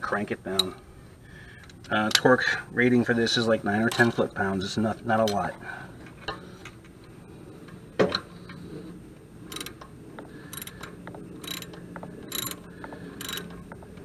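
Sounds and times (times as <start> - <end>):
ratchet wrench clicking: 9.5 - 9.8, 10.5 - 12.6, 13.2 - 13.5.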